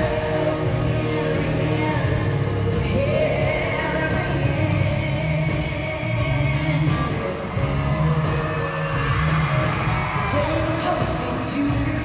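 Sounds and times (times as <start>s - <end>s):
woman singing into a microphone: 0.0s - 7.7s
live band music: 0.0s - 12.0s.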